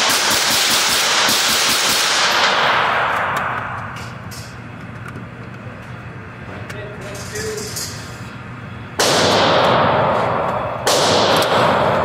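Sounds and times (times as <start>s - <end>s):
gunshots echoing indoors: 0.0s - 4.2s, 9.0s - 12.0s.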